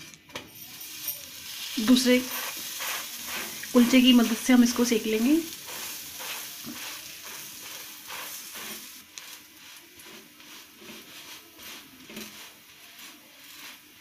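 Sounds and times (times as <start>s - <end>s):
butter sizzling on a hot pan: 0.5s - 14.0s.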